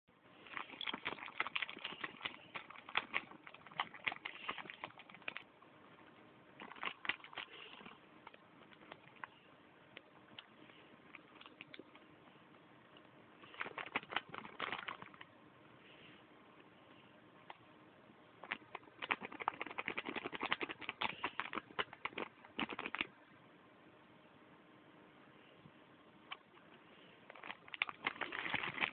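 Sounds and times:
plastic bag crinkling: 0.4 - 5.5, 6.6 - 9.3, 13.4 - 15.3, 27.3 - 28.9.

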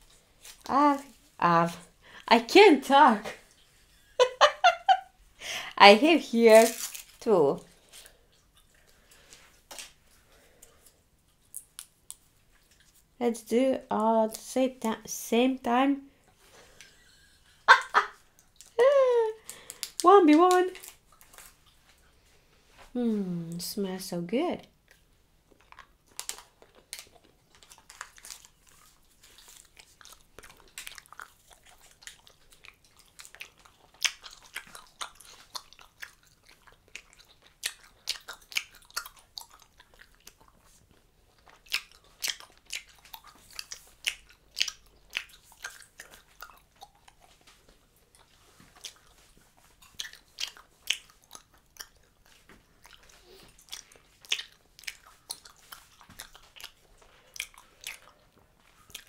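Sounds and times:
chewing gum smacks and clicks: 10.6 - 13.1, 19.4 - 22.0, 24.8 - 59.0.

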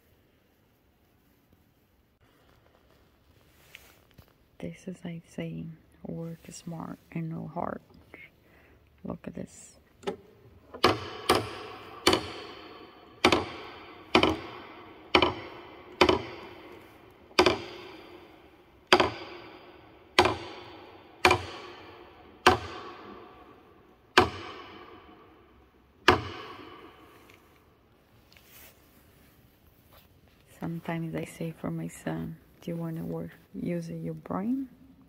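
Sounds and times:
wooden ratchet clacking: 10.0 - 25.4, 26.0 - 27.1.

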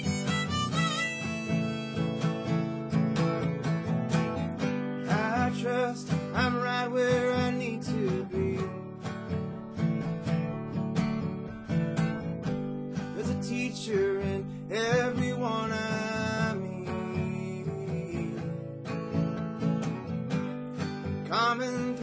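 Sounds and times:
harmonica melody: 0.0 - 3.6
acoustic guitar strumming: 0.0 - 22.0.

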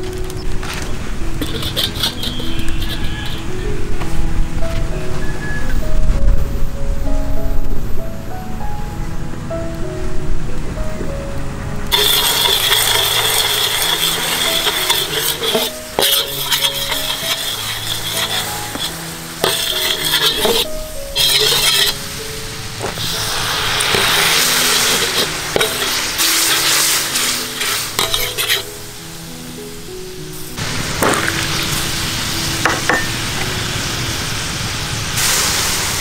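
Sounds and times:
background music: 0.0 - 34.4
sauce sizzling in a wok: 1.4 - 3.6, 11.9 - 29.2, 29.8 - 36.0
metal ladle scraping a pan: 1.4 - 3.7, 11.9 - 22.2, 22.9 - 28.8.

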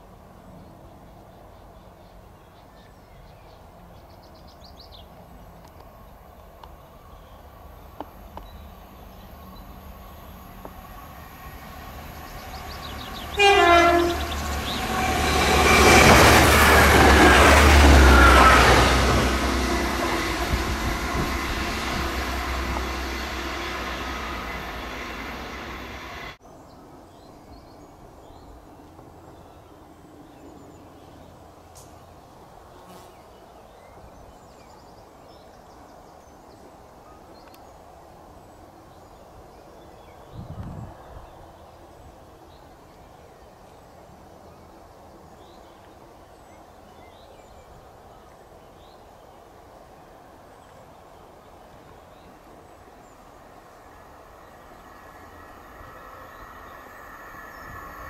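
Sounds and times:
train passing with engine rush: 0.0 - 27.2, 35.3 - 58.0
faint outdoor background: 0.0 - 58.0
train horn blast: 13.1 - 26.4.

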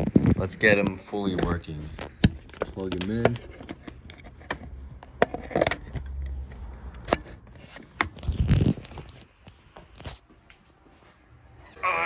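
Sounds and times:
handling clicks and knocks: 0.8 - 8.3.

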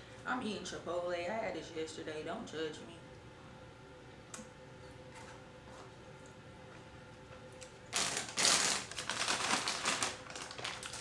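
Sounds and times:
paper bag crinkling: 7.9 - 11.0.

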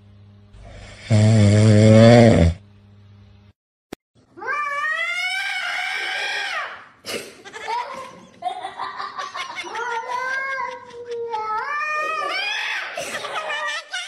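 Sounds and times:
cat yowling: 4.4 - 6.8, 11.3 - 12.9.

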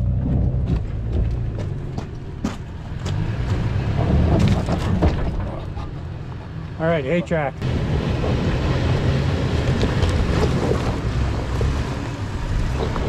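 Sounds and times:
truck engine under load: 0.0 - 6.8.

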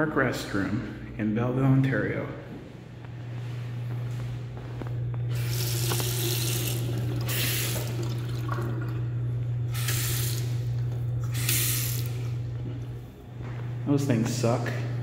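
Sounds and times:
steady low hum: 0.0 - 15.0
water splashing into sink: 5.3 - 9.0.

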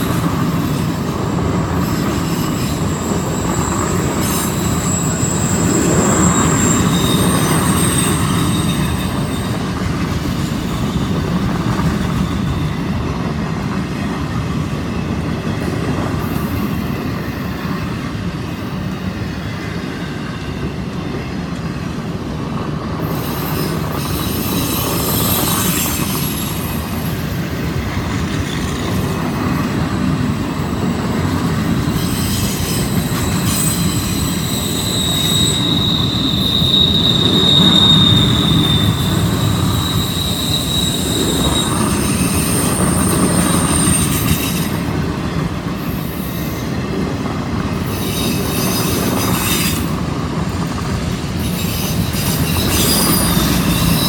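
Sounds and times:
train wheels rumbling on rail: 0.0 - 54.0
high-pitched wheel squeal: 0.1 - 13.3, 23.1 - 29.5, 30.6 - 45.0, 51.4 - 54.0.

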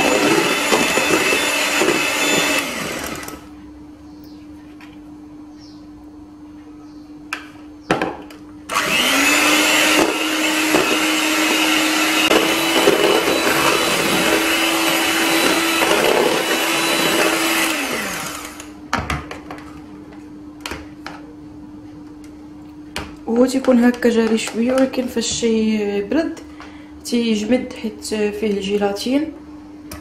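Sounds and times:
electric hand mixer running: 0.0 - 3.5, 8.7 - 18.8.

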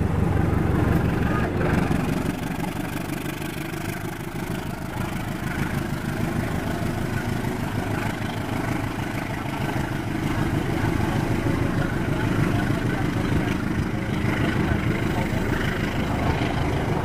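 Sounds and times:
coaches rolling on rails: 0.0 - 17.0
diesel locomotive passing: 0.0 - 17.0.

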